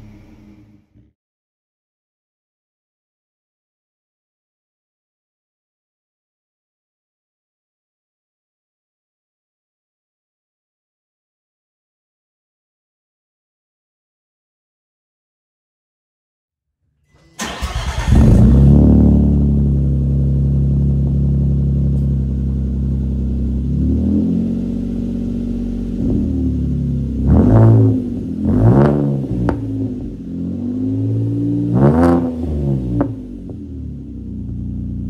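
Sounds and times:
car engine starting and idling: 0:00.0 - 0:01.1, 0:17.1 - 0:35.0
engine revving: 0:17.2 - 0:35.0.

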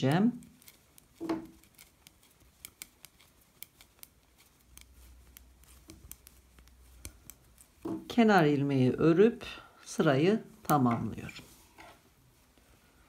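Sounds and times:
knitting needles clicking: 0:00.0 - 0:09.0, 0:10.6 - 0:11.4.

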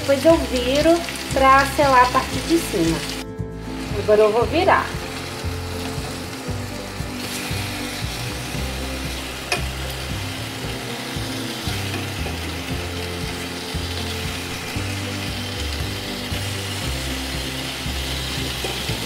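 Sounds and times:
chicken sizzling in a frying pan: 0:00.0 - 0:19.0
utensil tapping pan: 0:09.4 - 0:09.8.

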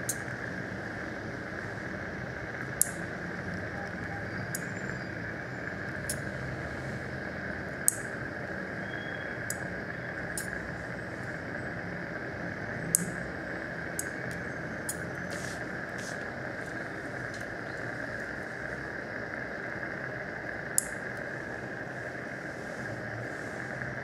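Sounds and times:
suction tip hissing: 0:14.9 - 0:17.3.

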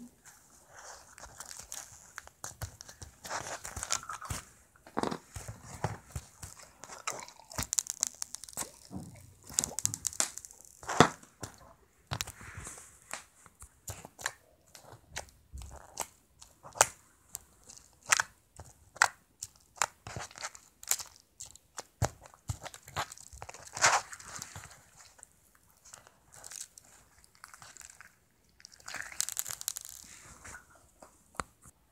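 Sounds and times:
slime clicking and popping: 0:01.4 - 0:12.3, 0:13.8 - 0:24.7, 0:26.4 - 0:30.1.

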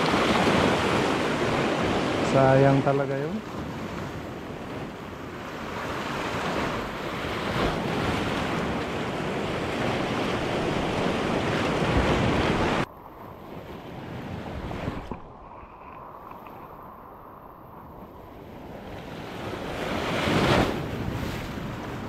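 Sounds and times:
sea waves washing on rocks: 0:00.0 - 0:22.0.

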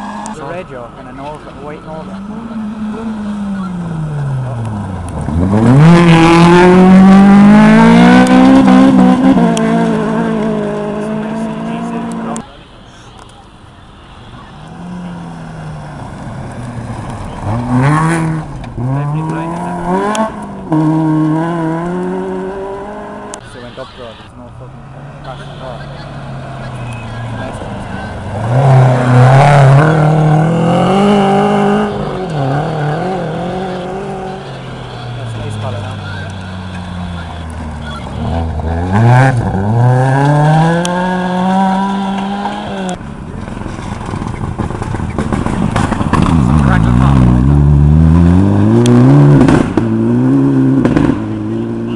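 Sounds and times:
rally car engine at full throttle: 0:00.0 - 0:51.9.

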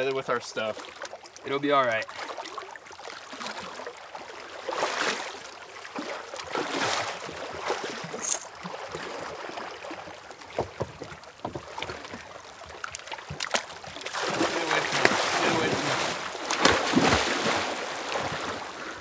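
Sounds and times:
lake water lapping on rocks: 0:00.6 - 0:19.0
splashes of person wading: 0:02.1 - 0:19.0.

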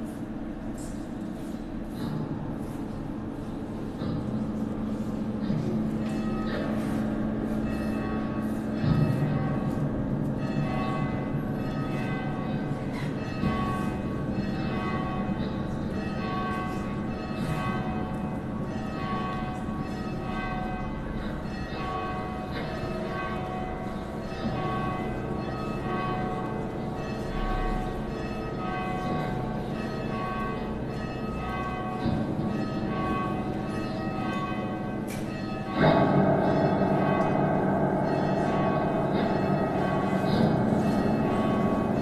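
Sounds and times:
bells ringing: 0:04.5 - 0:42.0.

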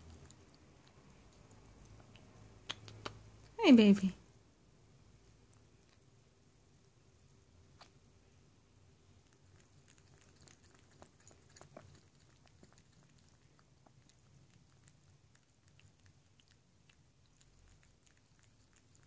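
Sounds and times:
cat lapping liquid: 0:00.0 - 0:03.1, 0:09.1 - 0:19.0.

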